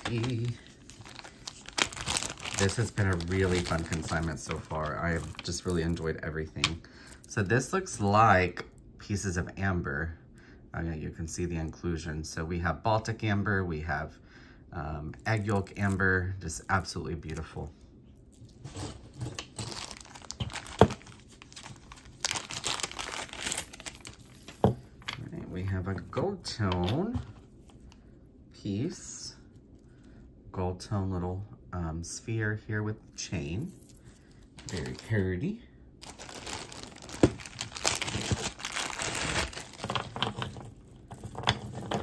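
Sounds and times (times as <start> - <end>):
packaging crinkling: 0.0 - 6.1, 18.4 - 24.6, 36.0 - 40.7.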